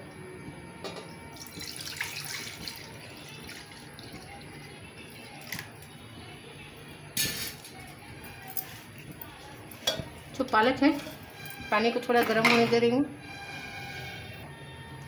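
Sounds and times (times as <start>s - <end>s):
water pouring into metal pan: 1.4s - 5.6s.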